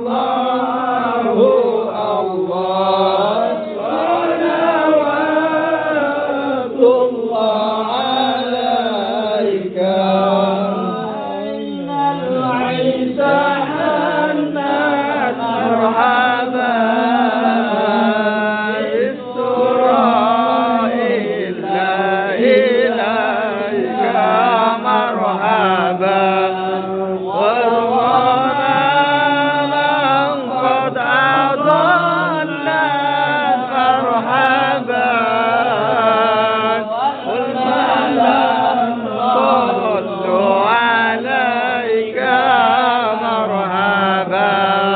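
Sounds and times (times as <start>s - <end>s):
men chanting devotional praise: 0.0s - 44.9s.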